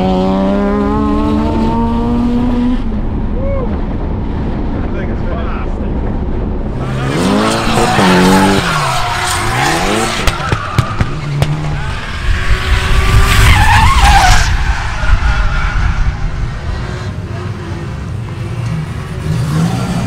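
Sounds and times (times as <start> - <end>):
car engines revving: 0.0 - 20.0
tyres squealing and skidding: 6.8 - 17.9
sharp cracks: 8.6 - 11.8.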